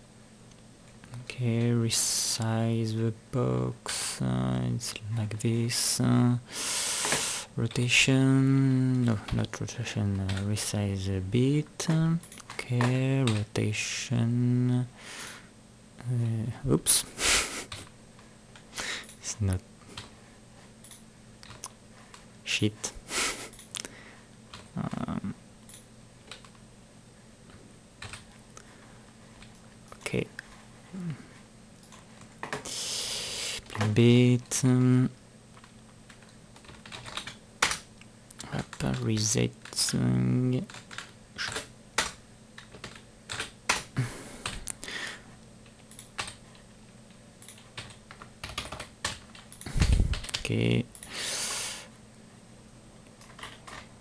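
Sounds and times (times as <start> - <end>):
computer keyboard keys clicking: 10.1 - 10.6, 11.9 - 13.5, 25.7 - 26.6, 28.0 - 28.3, 35.6 - 39.9, 40.6 - 44.8, 45.6 - 46.6, 47.4 - 51.1, 53.2 - 53.9.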